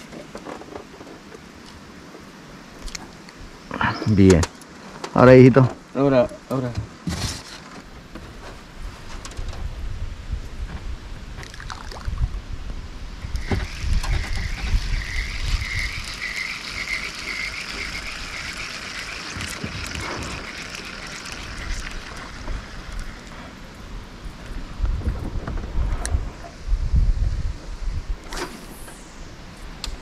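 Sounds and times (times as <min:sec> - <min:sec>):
wind rumble on microphone: 0:07.9 - 0:18.6, 0:19.4 - 0:30.0.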